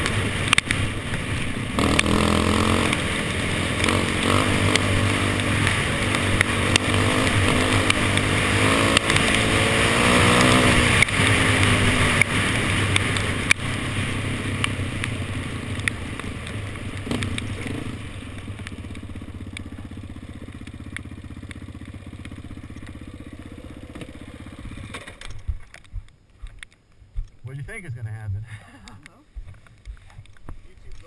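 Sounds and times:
quad engine revving: 1.7 - 14.8, 22.2 - 24.9
gravel clicks and rattles: 10.4 - 27.5, 28.8 - 31.0.

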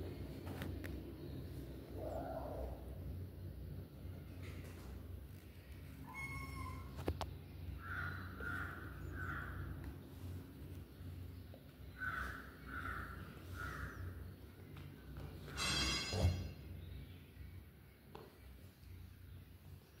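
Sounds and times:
crow cawing: 7.8 - 9.8, 11.9 - 14.2.

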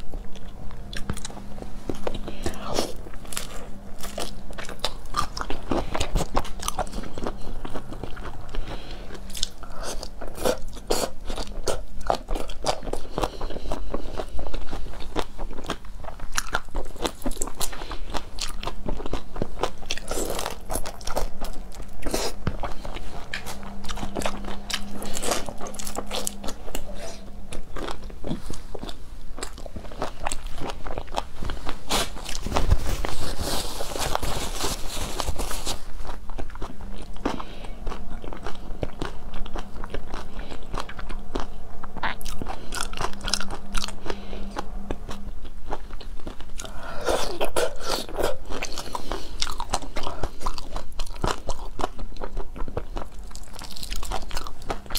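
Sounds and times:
wet chewing and smacking: 0.0 - 32.7, 36.0 - 54.9
paper tissue rustling: 31.4 - 36.0.

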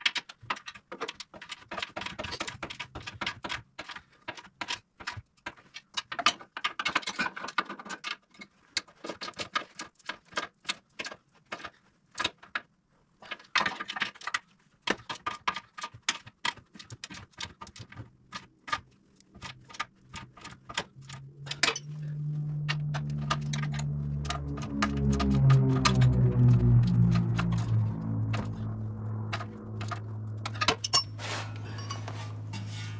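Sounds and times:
metal clinks of tools: 30.8 - 32.7.

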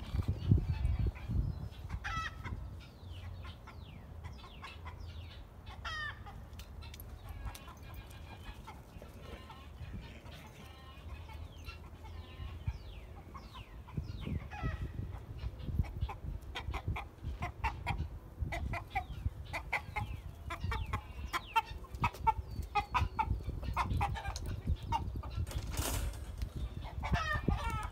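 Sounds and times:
chickens clucking: 0.0 - 27.9.

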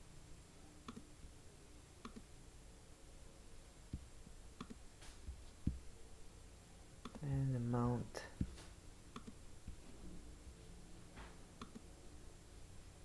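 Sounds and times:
computer mouse clicks: 0.8 - 1.1, 2.0 - 2.3, 4.6 - 4.8, 7.0 - 7.2, 8.4 - 9.4, 11.6 - 11.9.

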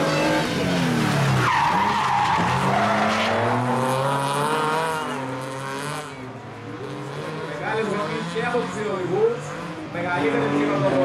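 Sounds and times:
car engine revving hard: 0.0 - 11.0
tyres squealing: 1.3 - 4.1.

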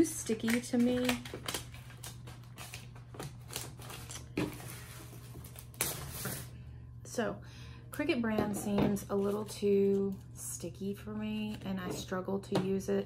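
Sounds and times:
contact paper crinkling: 0.4 - 6.5.

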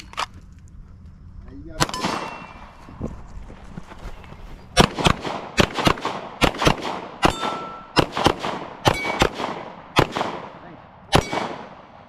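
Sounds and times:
gunshots: 1.8 - 2.8, 4.8 - 12.0
steel target ringing: 7.2 - 8.0.

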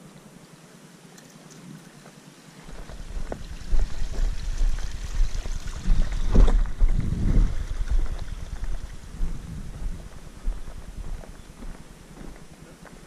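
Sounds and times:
wind buffeting microphone: 2.7 - 12.4.

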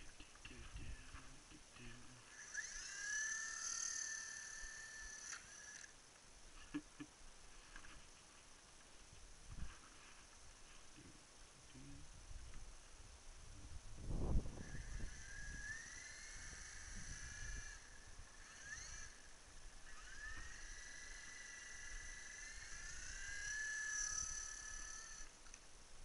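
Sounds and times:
small motor whining: 0.0 - 6.0, 13.9 - 25.6.

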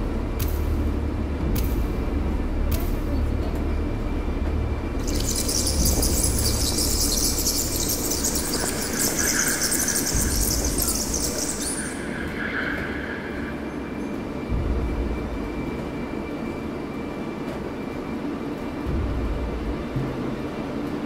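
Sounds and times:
bus engine low rumble: 0.0 - 5.0.

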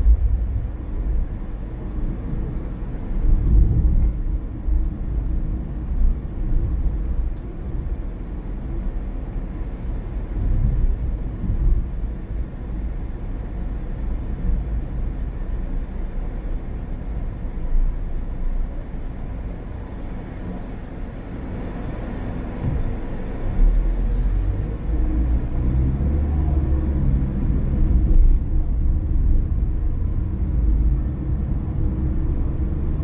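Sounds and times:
car road and engine rumble: 0.0 - 33.0
road hiss: 20.4 - 25.8.

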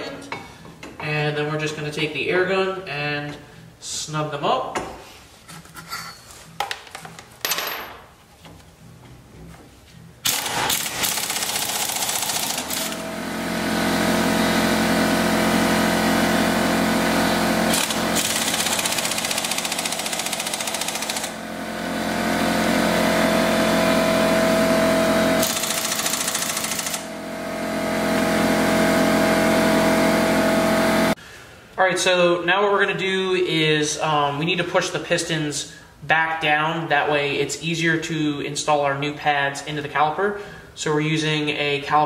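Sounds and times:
pneumatic impact wrench hammering: 10.2 - 13.1, 17.7 - 21.4, 25.4 - 27.1.

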